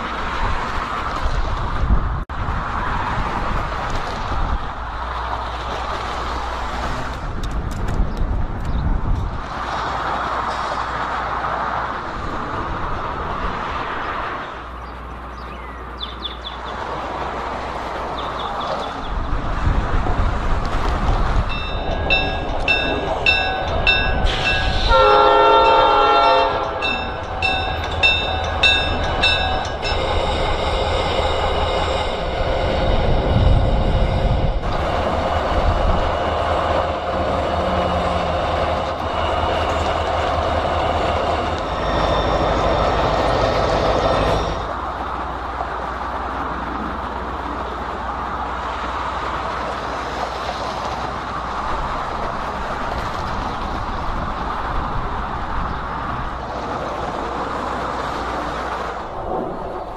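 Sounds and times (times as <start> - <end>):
diesel locomotive engine rumble: 0.0 - 59.9
locomotive bell ringing: 21.5 - 33.2, 35.9 - 44.8
train horn blast: 24.2 - 33.1.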